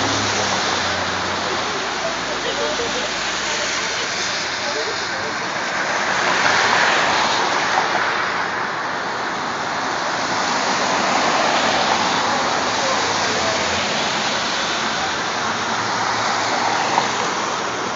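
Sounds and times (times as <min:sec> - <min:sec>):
tyres swishing on wet road: 0:00.0 - 0:17.9.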